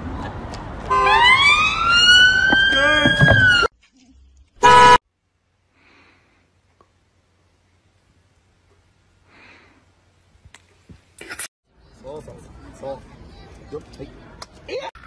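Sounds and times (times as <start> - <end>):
street noise: 0.0 - 15.0
police siren wailing: 0.9 - 3.7.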